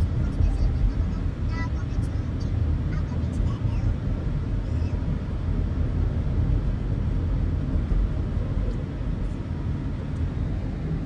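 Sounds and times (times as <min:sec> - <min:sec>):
car engine rumble: 0:00.0 - 0:11.0
tyres on road: 0:00.0 - 0:11.0.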